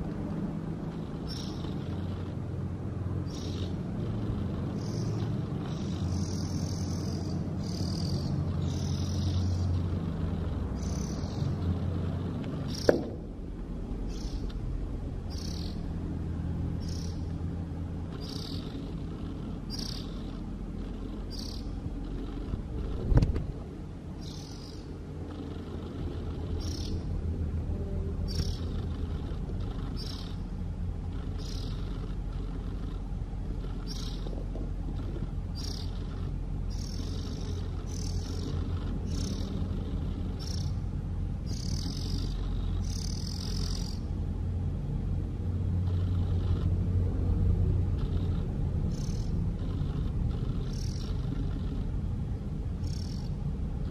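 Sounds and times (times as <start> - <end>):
low hum: 0.0 - 53.9
sharp thump: 12.9 - 13.3.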